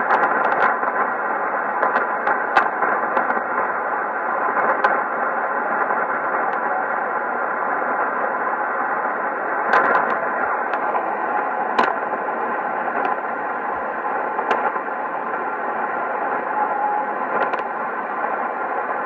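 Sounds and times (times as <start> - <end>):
radio hiss and crackle: 0.0 - 19.0
radio static crashes: 0.0 - 19.0.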